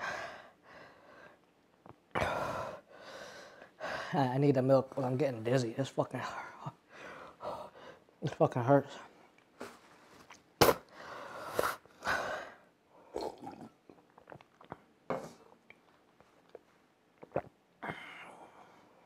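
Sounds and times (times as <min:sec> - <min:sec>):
man slurping milk: 0:13.2 - 0:14.5.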